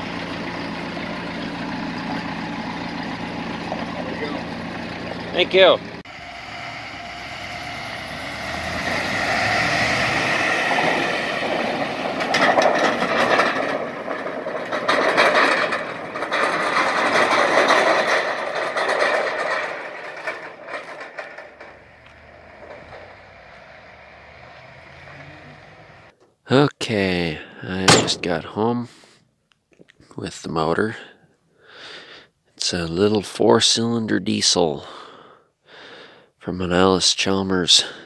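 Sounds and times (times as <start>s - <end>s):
pickup truck driving past: 0.0s - 17.5s, 21.2s - 26.1s
trailer rattling: 0.0s - 26.1s, 27.7s - 28.8s.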